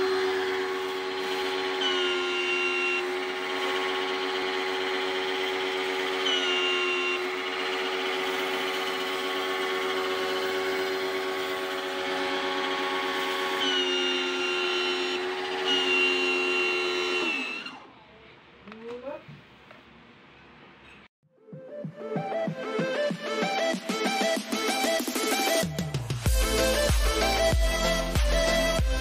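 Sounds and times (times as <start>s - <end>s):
pressure washer motor humming: 0.0s - 17.8s
motor winding down: 0.0s - 17.9s.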